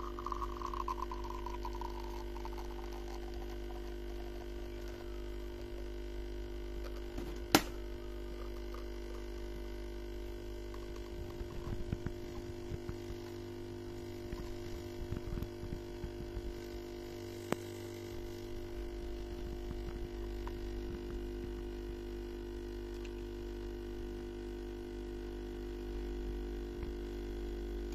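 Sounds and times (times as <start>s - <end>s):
espresso machine pump humming: 0.0s - 27.9s.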